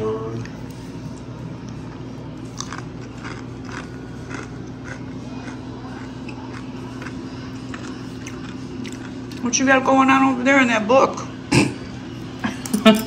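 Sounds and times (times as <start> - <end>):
steady low hum: 0.0 - 13.0
person chewing crunchy food: 0.4 - 9.4.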